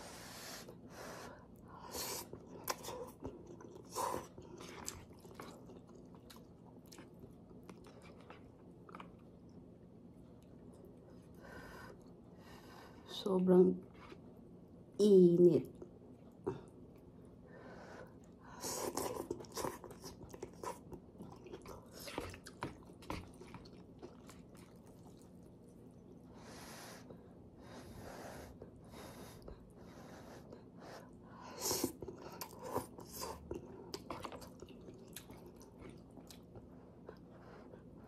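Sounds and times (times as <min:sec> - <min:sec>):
chewing noodles with wet clicks: 0:02.2 - 0:12.2, 0:18.2 - 0:26.2, 0:31.8 - 0:37.3.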